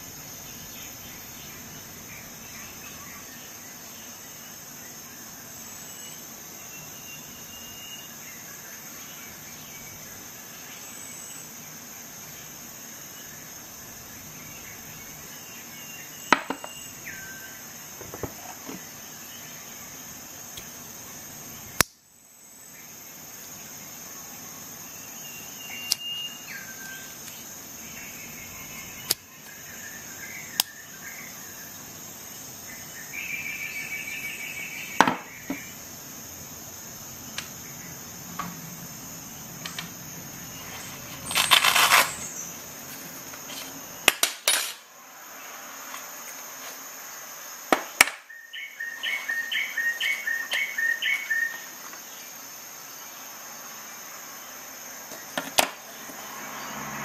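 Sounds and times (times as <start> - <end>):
insects chirring: 0.0 - 57.0
sharp clicks and clinks: 41.1 - 42.2.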